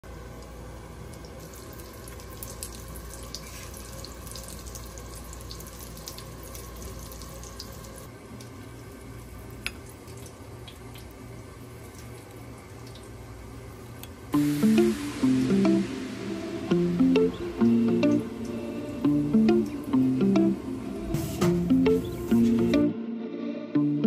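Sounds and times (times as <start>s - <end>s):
steady watery hiss: 1.1s - 8.1s, 14.3s - 21.3s
low hum: 14.4s - 24.0s.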